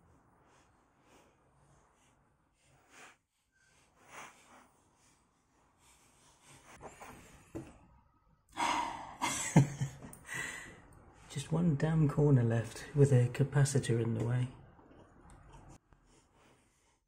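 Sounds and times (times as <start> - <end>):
heavy breath: 10.2 - 10.9.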